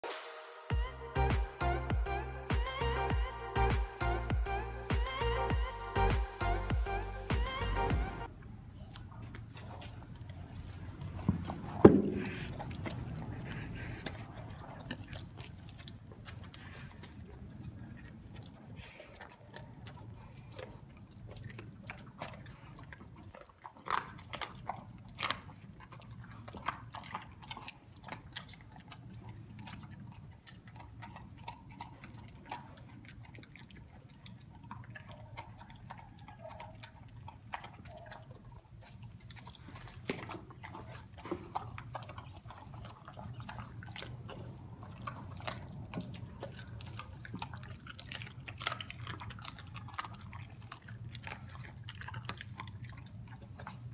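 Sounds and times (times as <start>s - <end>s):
steady low hum: 0.7s - 8.9s
dog chewing and licking: 0.7s - 53.9s.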